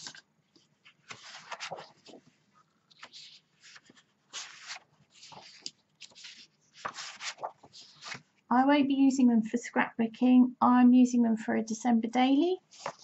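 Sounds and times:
paper sheets rustling and sliding: 0.8 - 8.3, 12.7 - 13.0.

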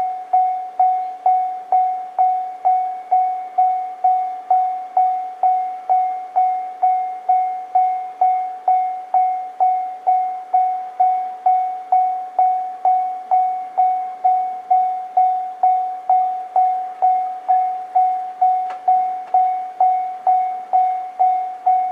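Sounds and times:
level crossing alarm ringing: 0.0 - 21.9.

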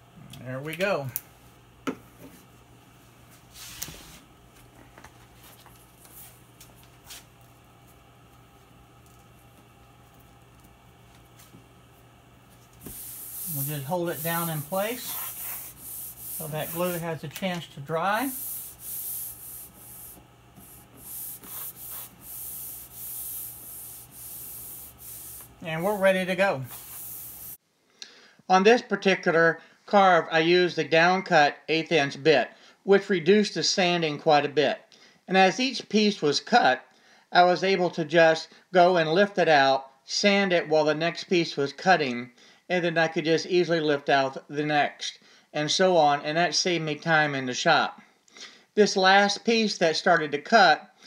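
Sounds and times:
low steady hum: 0.0 - 27.6
tape rustling hiss: 3.3 - 27.6.

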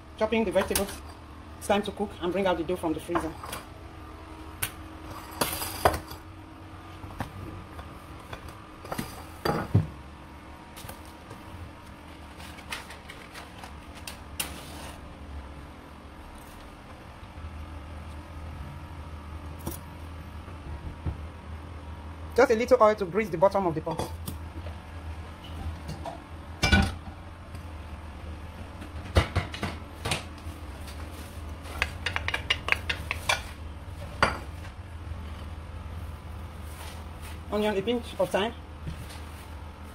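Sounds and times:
pots knocking on stove grate: 31.7 - 33.4.

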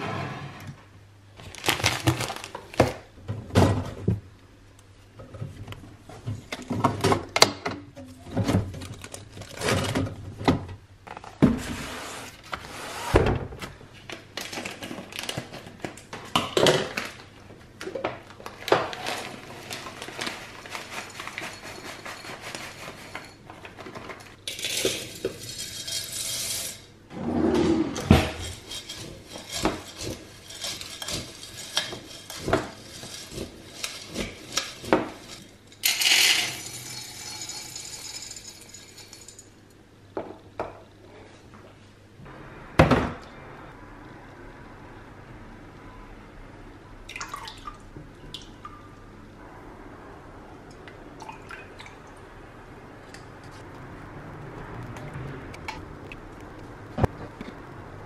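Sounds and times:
glass jars and bins clinking: 28.2 - 39.6.

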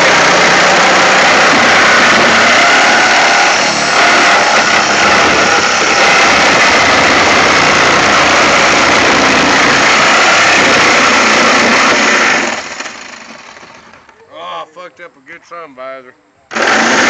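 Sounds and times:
reciprocating saw cutting sheet metal: 0.0 - 13.6, 16.5 - 17.0.

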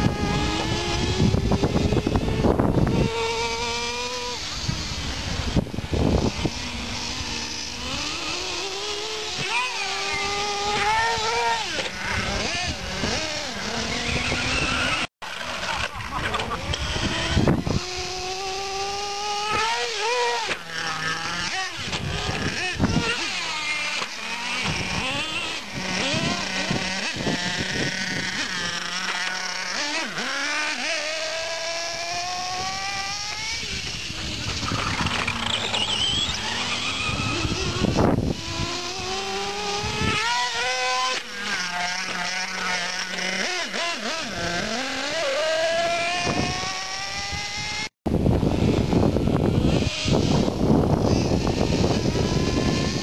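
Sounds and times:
rc car engines revving: 0.0 - 53.0.

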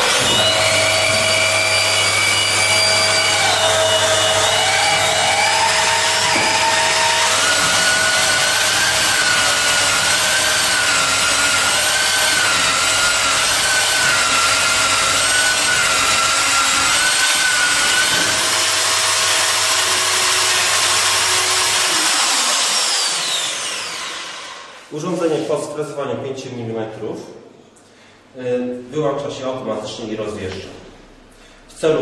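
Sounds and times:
motor winding down: 0.0 - 24.7
pipe planer rasping whine: 0.0 - 24.9.

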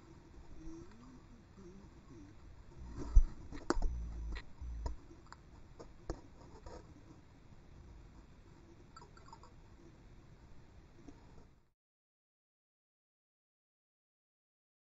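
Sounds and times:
deep underwater thuds: 2.8 - 5.0
muffled underwater clicks and knocks: 2.8 - 6.8.

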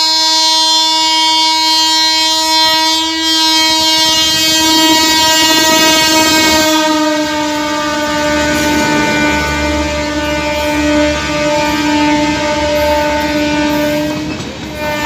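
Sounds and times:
locomotive horn blast: 0.0 - 15.0
train wheels clattering on rails: 3.7 - 15.0.

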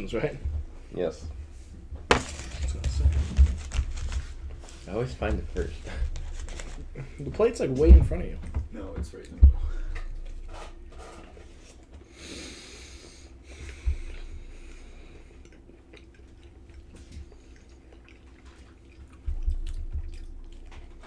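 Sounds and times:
people chewing pastry: 2.8 - 7.4, 9.2 - 21.0
nose breathing: 11.6 - 15.5.

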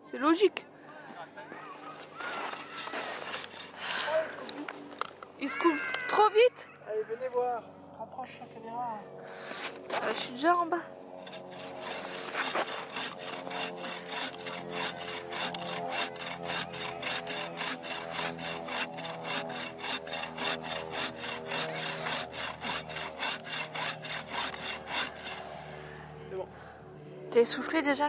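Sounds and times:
hand saw rasping through wood: 2.3 - 3.9, 9.4 - 25.9.

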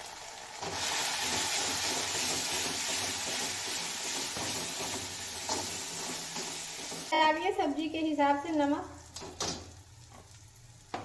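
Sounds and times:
spices sizzling in hot oil: 0.0 - 11.0
spatula stirring pan: 0.6 - 7.1.

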